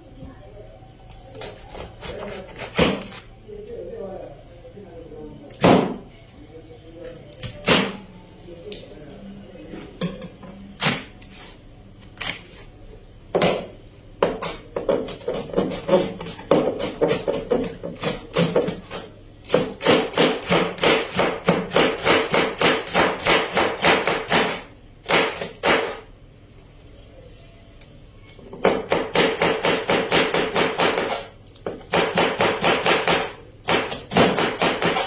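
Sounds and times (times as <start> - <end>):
knife chopping cabbage on board: 1.4 - 3.2, 13.4 - 26.0, 28.6 - 35.0.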